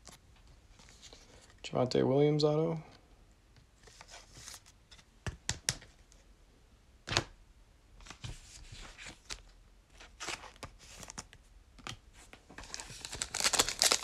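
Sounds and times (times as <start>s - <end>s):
cards clicking and tapping: 5.2s - 5.9s
wrapper rustling and crinkling: 12.3s - 14.0s.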